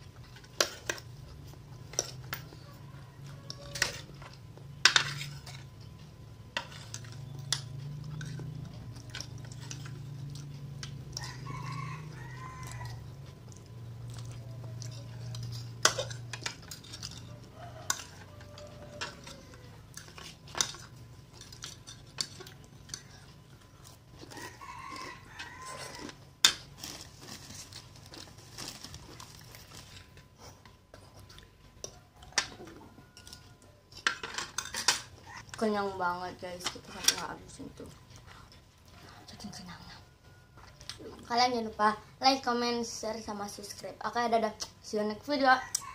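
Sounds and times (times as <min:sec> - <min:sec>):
rooster crowing: 0:02.4 - 0:04.2, 0:11.1 - 0:13.2, 0:17.2 - 0:20.0, 0:24.2 - 0:26.2, 0:31.9 - 0:33.9, 0:45.5 - 0:45.9.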